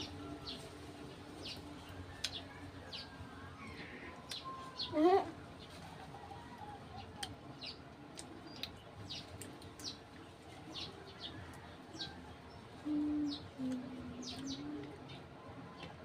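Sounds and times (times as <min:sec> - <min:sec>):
low coo-like tones: 0:02.2 - 0:05.5, 0:12.8 - 0:16.0
small birds chirping: 0:06.9 - 0:16.0.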